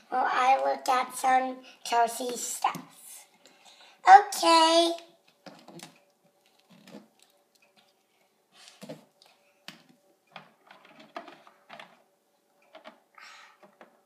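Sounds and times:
plastic toys clicking on wooden floor: 0:09.7 - 0:12.0, 0:12.6 - 0:13.0.

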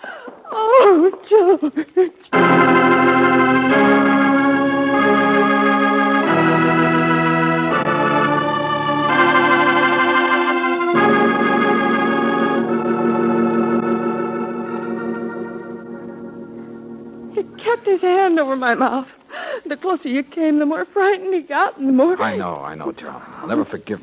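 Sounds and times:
organ chords: 0:02.2 - 0:19.0.

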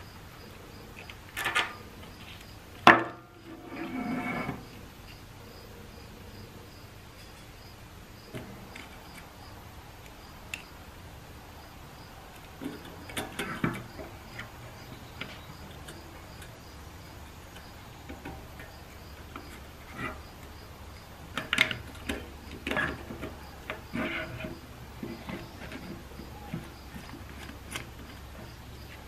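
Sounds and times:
hand tools and metal parts clattering: 0:01.0 - 0:05.2, 0:08.3 - 0:09.4, 0:12.3 - 0:29.0.

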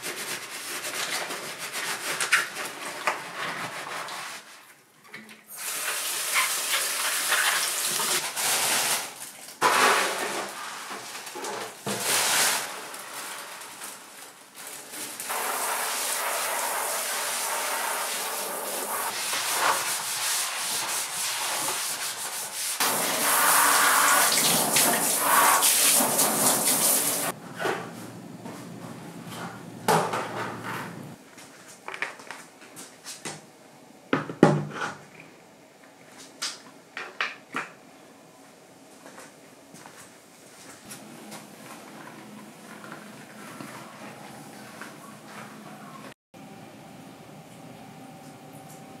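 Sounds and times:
cloth scrubbing faucet: 0:05.6 - 0:08.2, 0:15.2 - 0:27.4
shower spraying into plastic box: 0:22.8 - 0:27.3.

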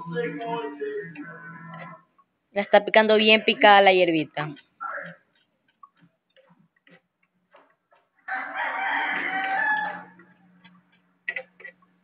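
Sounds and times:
rooster crowing: 0:08.2 - 0:10.3.

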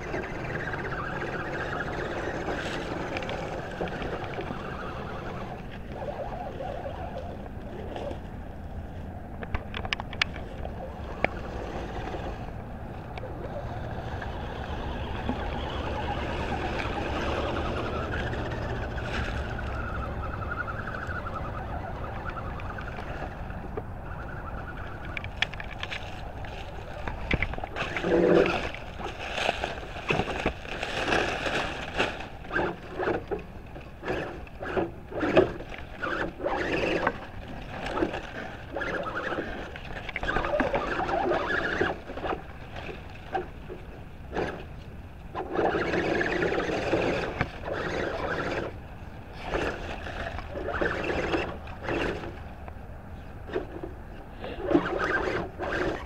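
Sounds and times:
electric motor whining: 0:00.0 - 0:08.2, 0:09.5 - 0:42.9
truck splashing through mud: 0:10.8 - 0:25.0, 0:27.6 - 0:33.2, 0:40.3 - 0:42.7, 0:44.4 - 0:52.5, 0:54.5 - 0:56.0.

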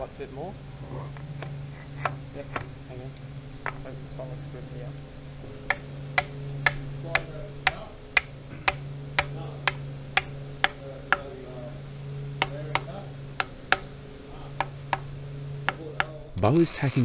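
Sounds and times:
hammer tapping steel bolts: 0:01.4 - 0:02.7, 0:05.6 - 0:16.3.

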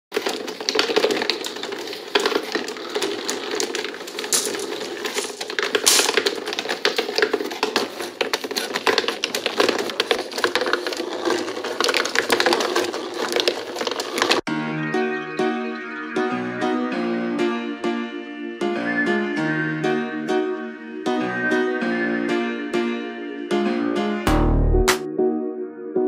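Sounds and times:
glass marbles clattering on a track: 0:00.2 - 0:07.9.

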